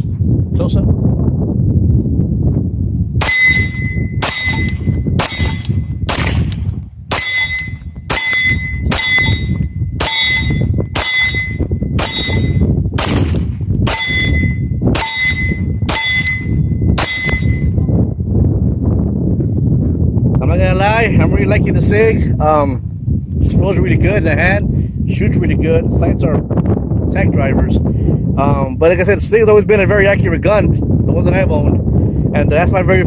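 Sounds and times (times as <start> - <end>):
wind rumble on microphone: 0.0 - 33.0
pistol shots: 3.2 - 12.3, 13.0 - 16.4
ring of steel target: 3.2 - 18.0.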